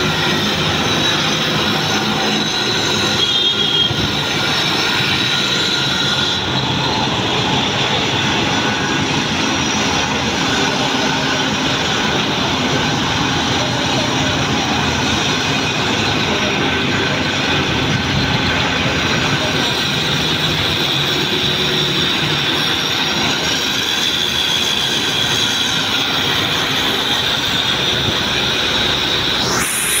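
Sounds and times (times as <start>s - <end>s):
constant high whine: 0.0s - 30.0s
site machinery: 0.0s - 30.0s
traffic noise: 0.0s - 30.0s
short rising whine: 26.6s - 30.0s.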